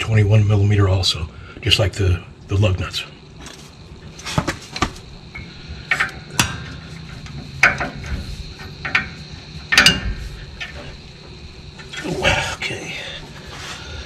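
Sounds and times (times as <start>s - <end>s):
wrench clanking on metal: 5.4s - 11.0s.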